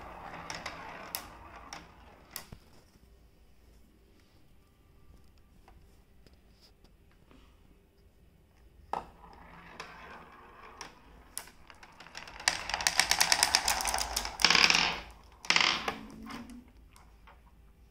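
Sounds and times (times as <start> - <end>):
marbles clicking on wooden run: 0.0 - 2.6, 9.1 - 16.2.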